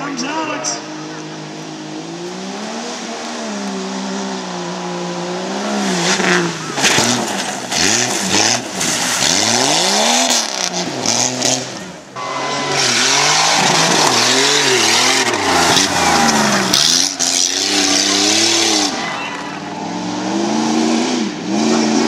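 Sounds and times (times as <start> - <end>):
truck engines revving hard: 0.0 - 22.0.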